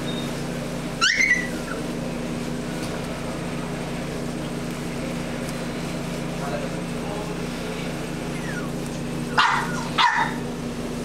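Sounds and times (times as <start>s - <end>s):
steady low hum: 0.0s - 11.0s
puppy yelp: 1.0s - 1.9s, 9.3s - 10.5s.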